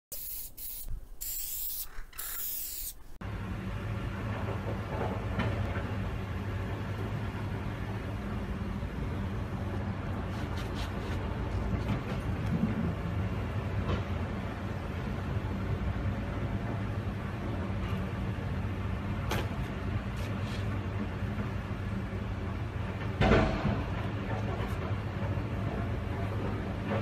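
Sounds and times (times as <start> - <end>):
spray paint can hissing: 0.1 - 3.2.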